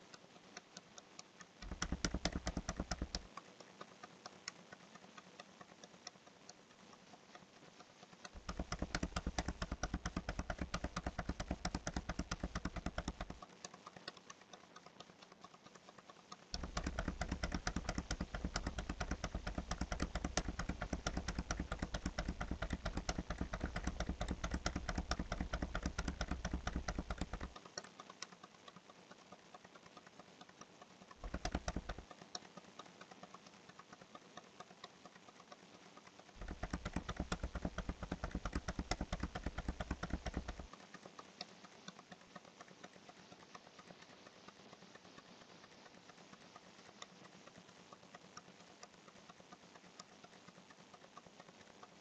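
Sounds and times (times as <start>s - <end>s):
rapid small clicks: 0.0s - 52.0s.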